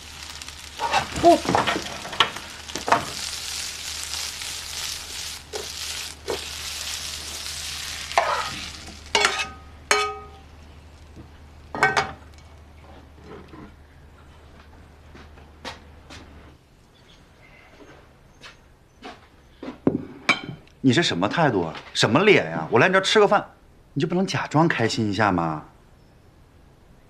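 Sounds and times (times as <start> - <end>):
greens sizzling in a frying pan: 0.0 - 12.7
metal spoon stirring: 0.3 - 10.3
metal clanks of pan and utensils: 9.2 - 10.4.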